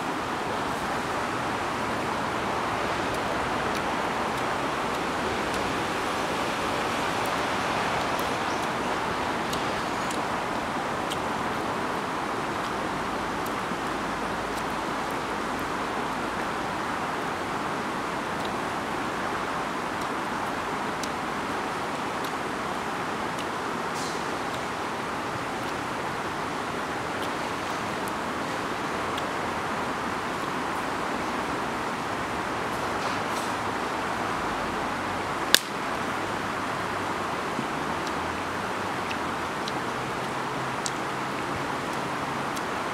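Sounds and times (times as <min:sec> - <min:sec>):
river rushing: 0:00.0 - 0:42.9
sharp click: 0:35.5 - 0:35.8.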